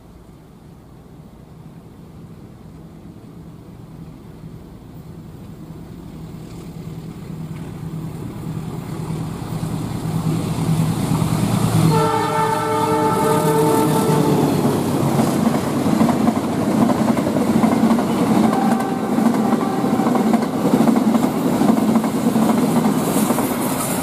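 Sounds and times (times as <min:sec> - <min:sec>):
diesel locomotive engine drone: 0:00.0 - 0:24.0
train horn blast: 0:11.8 - 0:14.7, 0:18.4 - 0:20.3.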